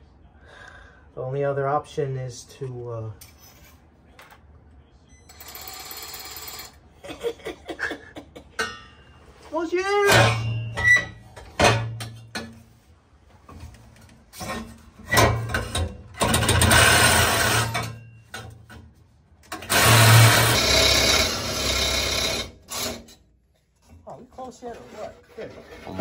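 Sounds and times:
reciprocating saw cutting metal pipe: 16.2s - 18.0s, 19.6s - 23.1s.

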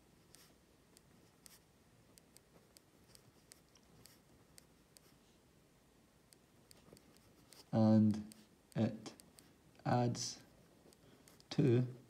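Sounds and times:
pen scratching on paper: 0.2s - 0.6s, 1.2s - 1.7s, 2.6s - 5.2s.

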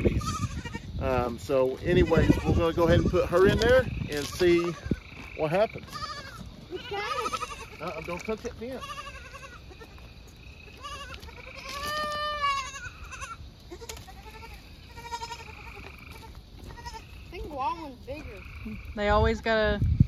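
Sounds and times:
goats bleating: 0.0s - 0.9s, 1.8s - 10.0s, 10.7s - 17.2s.

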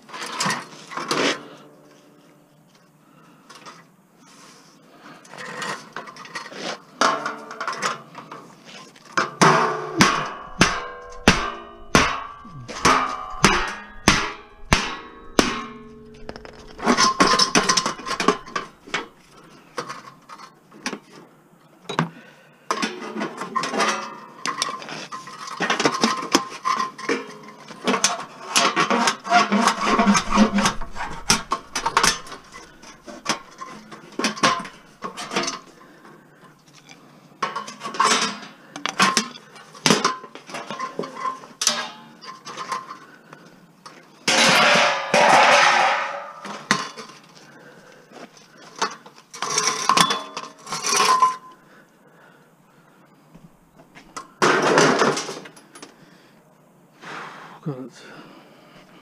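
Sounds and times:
metal clanking and rattling: 9.3s - 20.0s, 23.4s - 35.8s, 44.3s - 47.2s
hammer striking metal: 10.0s - 19.1s.

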